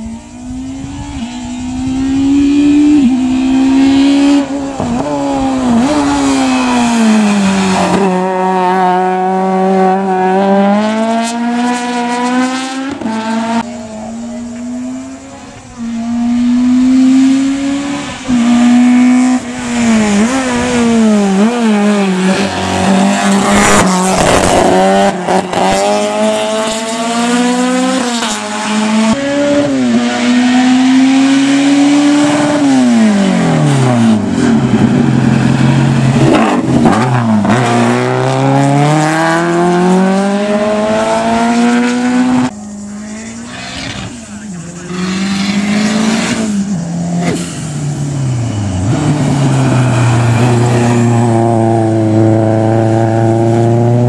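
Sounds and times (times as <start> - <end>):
race car engine at full throttle: 0.0 - 54.0.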